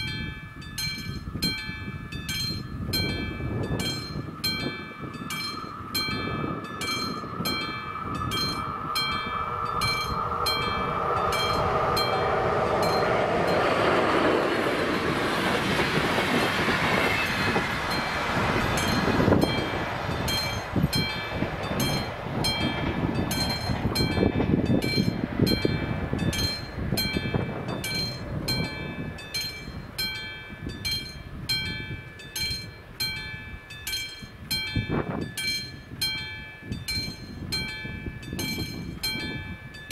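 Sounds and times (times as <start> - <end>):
train passing: 0.0 - 39.9.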